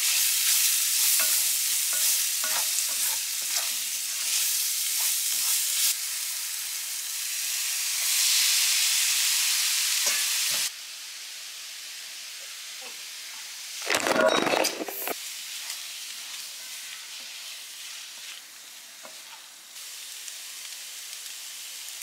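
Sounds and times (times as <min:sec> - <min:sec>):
vegetables and sausage sizzling: 0:00.0 - 0:22.0
spatula scraping a pan: 0:00.5 - 0:05.9, 0:14.0 - 0:18.4, 0:19.0 - 0:19.5.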